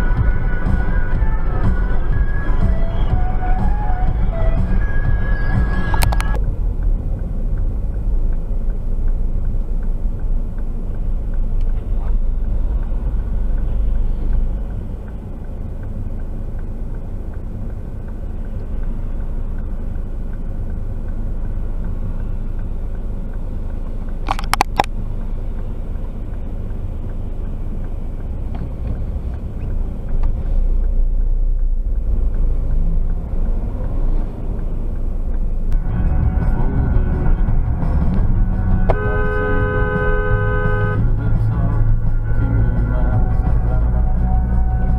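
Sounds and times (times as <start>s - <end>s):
car cabin road rumble: 0.0s - 44.9s
double click: 24.2s - 25.0s.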